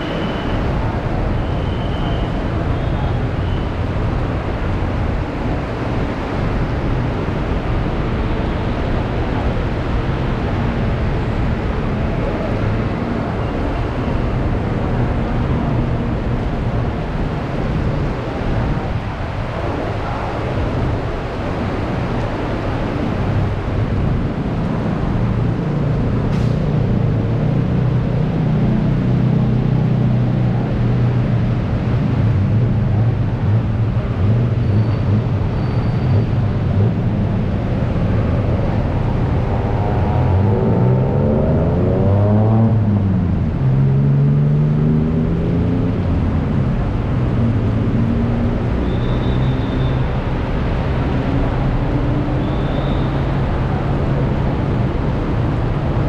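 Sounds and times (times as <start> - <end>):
heavy rain: 0.0 - 41.8
vehicle engine hum: 0.0 - 56.0.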